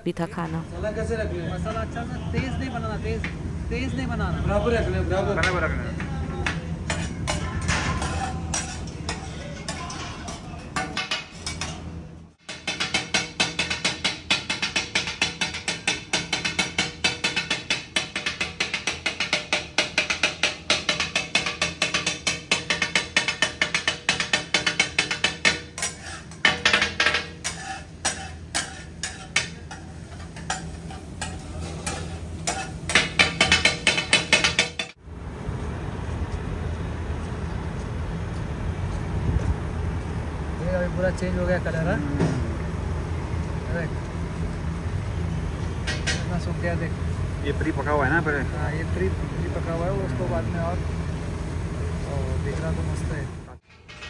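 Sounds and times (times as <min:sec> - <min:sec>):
steel spatulas clattering on griddle: 0:06.4 - 0:35.0, 0:45.8 - 0:46.3, 0:53.6 - 0:54.0.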